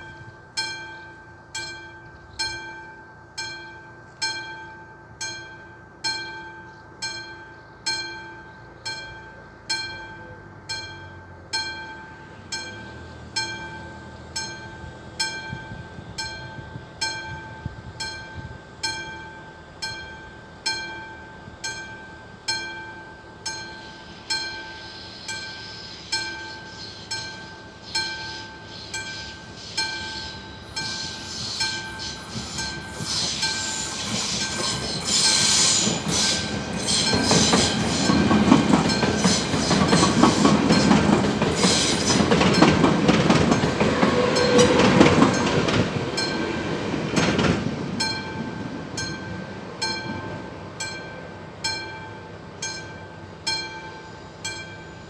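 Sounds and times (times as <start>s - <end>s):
level-crossing bell ringing: 0.0s - 32.0s, 48.0s - 55.0s
approaching train rumble: 0.0s - 55.0s
rising hiss: 27.7s - 40.6s.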